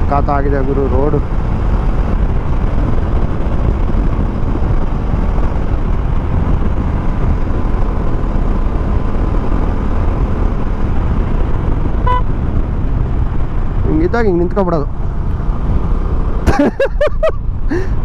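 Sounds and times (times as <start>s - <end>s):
motorcycle engine running: 0.0s - 16.8s
wind rushing over microphone: 0.0s - 18.0s.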